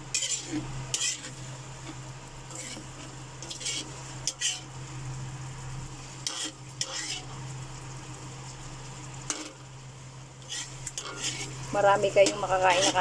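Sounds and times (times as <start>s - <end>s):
metal spatula scraping a pan: 0.0s - 1.5s, 2.5s - 4.7s, 6.2s - 7.4s, 10.4s - 13.0s
constant low hum: 0.0s - 13.0s
sauce sizzling: 0.0s - 13.0s.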